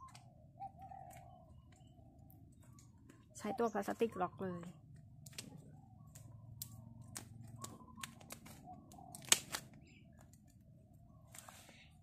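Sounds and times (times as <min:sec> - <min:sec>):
sharp plastic snap: 0:06.6 - 0:09.8.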